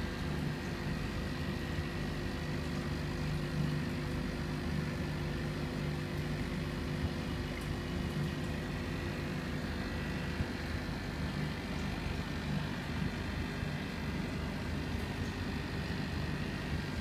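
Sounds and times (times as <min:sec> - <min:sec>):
aquarium air pump hum: 0:00.0 - 0:17.0.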